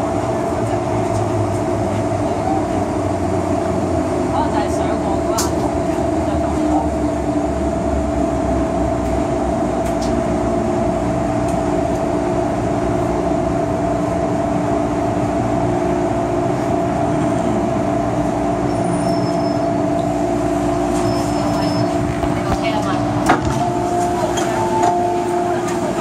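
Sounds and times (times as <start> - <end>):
wheels rumbling on rail: 0.0 - 26.0
metro motor tones: 16.8 - 26.0
high brake squeal: 18.7 - 19.8, 21.0 - 22.0.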